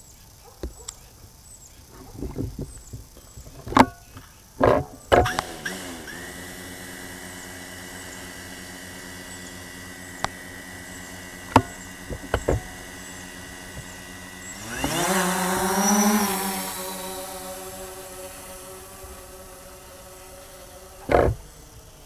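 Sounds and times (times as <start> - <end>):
drone propellers humming: 1.9 - 22.0
sharp clicks: 2.8 - 6.2, 9.8 - 19.4.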